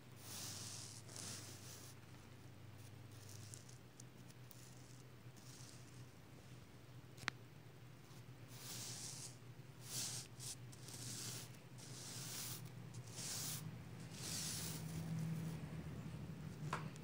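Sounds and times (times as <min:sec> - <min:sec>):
sequins swishing under a hand: 0:08.5 - 0:15.7.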